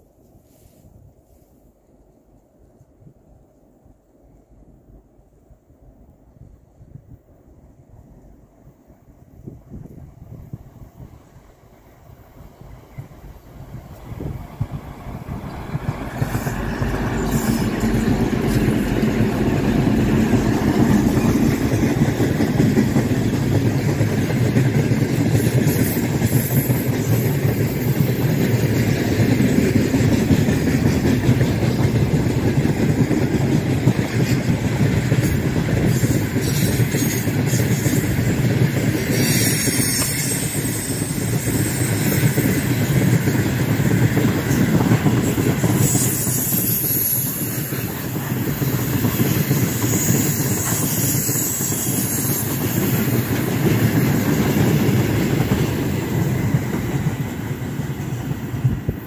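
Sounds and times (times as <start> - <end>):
diesel locomotive engine: 0.0 - 59.0
freight wagons rolling on track: 15.4 - 59.0.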